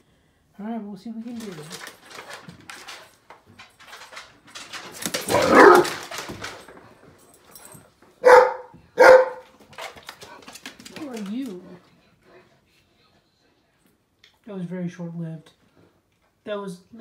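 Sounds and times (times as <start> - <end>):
dog paws clicking and scuffling: 1.0 - 12.5
dog rough outburst: 5.2 - 6.1
dog barking: 5.3 - 6.0, 8.2 - 9.5.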